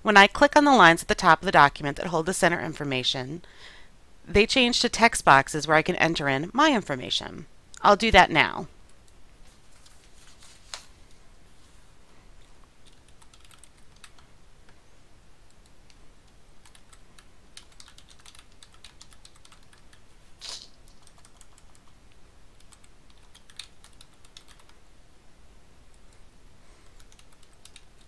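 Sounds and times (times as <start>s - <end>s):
computer keyboard typing: 12.8s - 14.3s, 16.6s - 20.0s, 20.8s - 24.8s, 26.9s - 28.0s.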